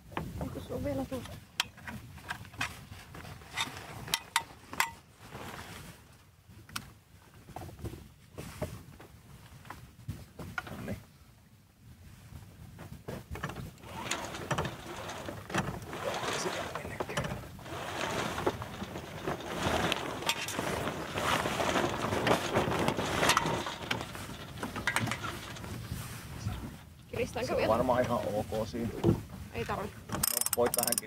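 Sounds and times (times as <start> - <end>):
sail flapping: 12.3 - 31.0
halyard rasping through blocks: 13.8 - 26.1, 30.2 - 31.0.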